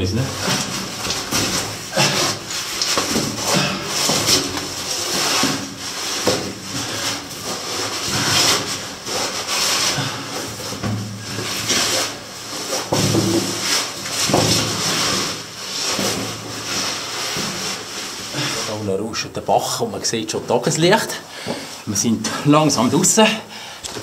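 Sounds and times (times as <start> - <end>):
clothing scraping against rock: 0.2 - 18.9.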